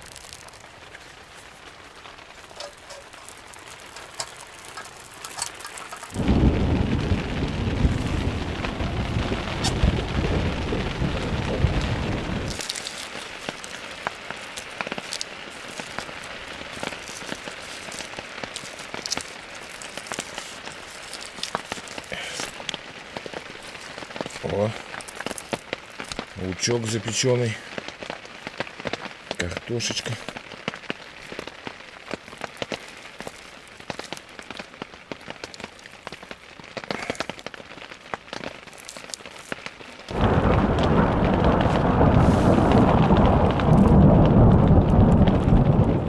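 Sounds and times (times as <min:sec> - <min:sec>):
rain falling on a tent: 0:00.0 - 0:46.0
deep rumble of thunder: 0:06.0 - 0:12.7, 0:40.1 - 0:46.0.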